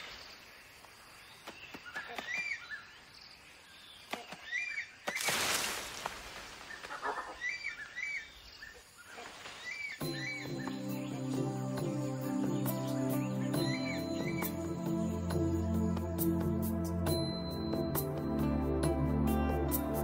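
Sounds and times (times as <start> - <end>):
leaves and branches rustling: 0.0 - 10.4.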